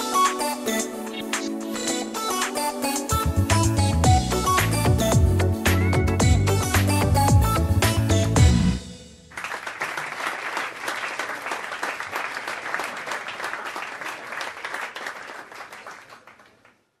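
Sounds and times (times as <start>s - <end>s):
song ending: 0.0s - 9.4s
audience applauding: 9.3s - 16.8s.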